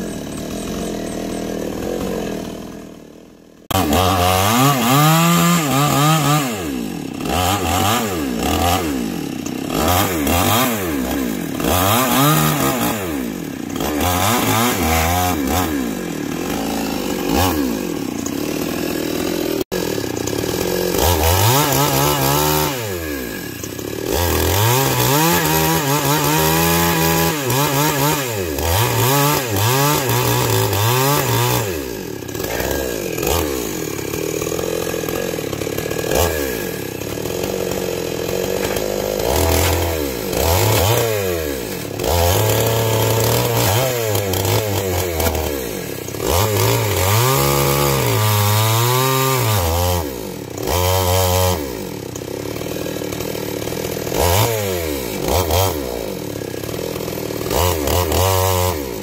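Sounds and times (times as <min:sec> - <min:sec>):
chainsaw cutting wood: 0:00.0 - 0:59.0.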